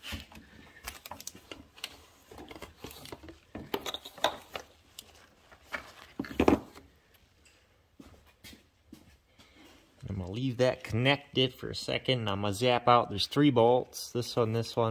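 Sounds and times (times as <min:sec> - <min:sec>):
metal and plastic clinks and knocks: 0:02.4 - 0:04.7.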